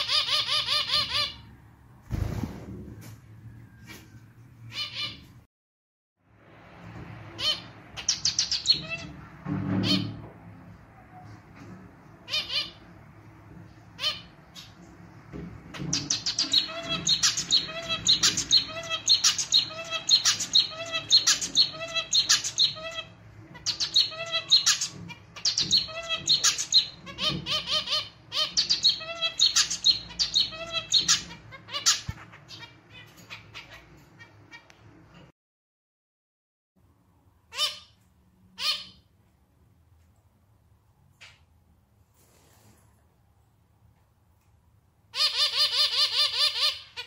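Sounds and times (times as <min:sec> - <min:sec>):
finch singing: 0:07.4 - 0:09.2, 0:15.8 - 0:34.7.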